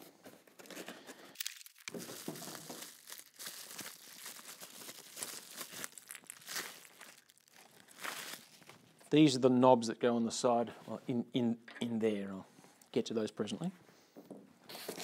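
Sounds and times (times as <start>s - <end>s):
cardboard rustling: 0.0s - 7.4s
plastic bags crinkling: 0.6s - 9.0s.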